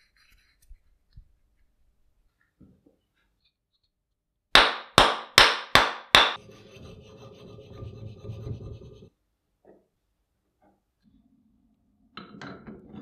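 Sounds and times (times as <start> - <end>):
faint steady rubbing: 0.0 - 1.8, 6.4 - 9.2
loud scraping strokes: 6.4 - 9.1.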